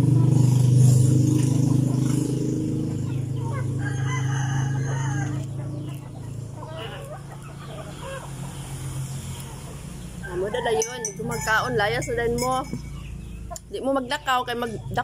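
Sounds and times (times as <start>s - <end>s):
chickens clucking: 0.0s - 15.0s
rooster crowing: 3.6s - 5.6s, 10.2s - 12.1s.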